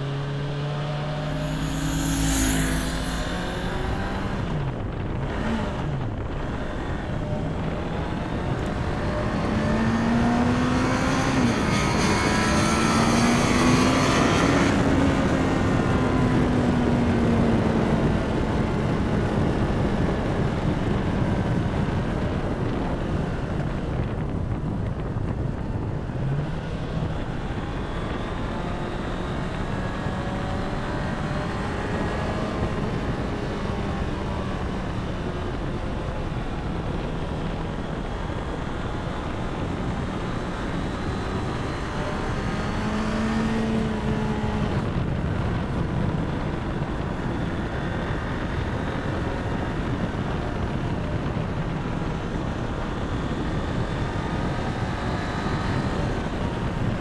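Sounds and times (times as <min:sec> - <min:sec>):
motorcycle engine revving: 0:00.0 - 0:22.8, 0:24.9 - 0:57.0
wind noise: 0:00.0 - 0:57.0.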